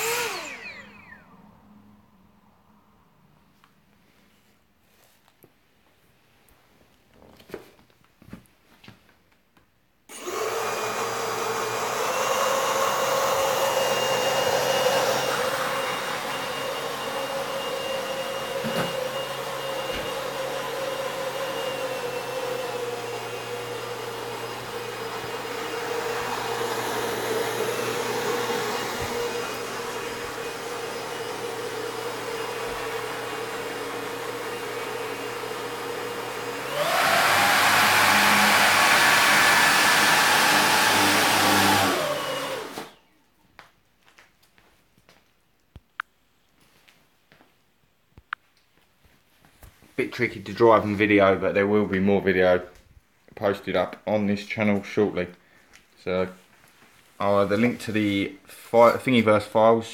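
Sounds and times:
hovercraft motors whining: 0:00.0 - 0:01.3, 0:21.6 - 0:43.0.

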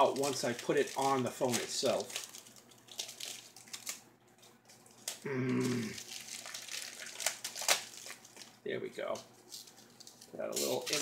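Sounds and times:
plastic packaging crinkling: 0:00.0 - 0:11.0
person humming: 0:05.2 - 0:06.0.

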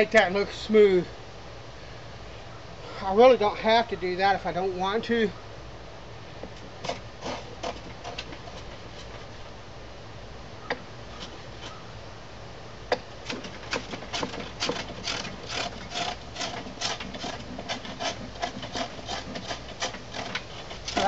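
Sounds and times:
hand tool rubbing wood: 0:06.8 - 0:09.3, 0:13.2 - 0:21.0.

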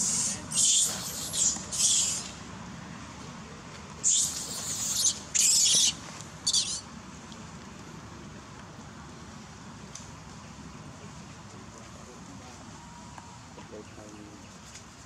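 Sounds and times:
young monkey screaming: 0:00.0 - 0:02.4, 0:04.0 - 0:06.8.

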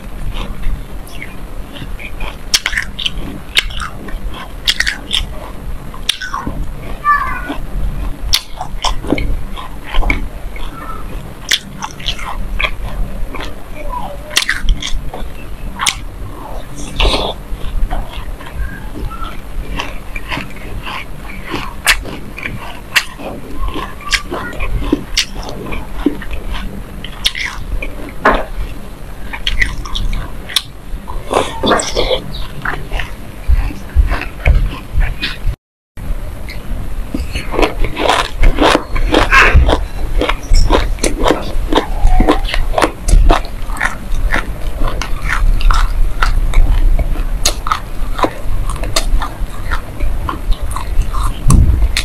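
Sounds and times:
person chewing seeds: 0:00.0 - 0:35.4, 0:36.4 - 0:52.0.

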